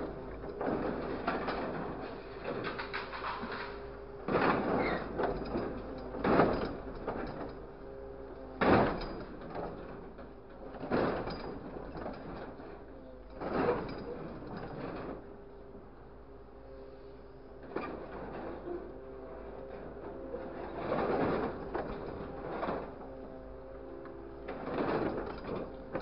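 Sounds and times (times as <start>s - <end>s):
engine and hydraulic hum: 0.0s - 26.0s
crane claw handling scrap: 0.5s - 7.6s.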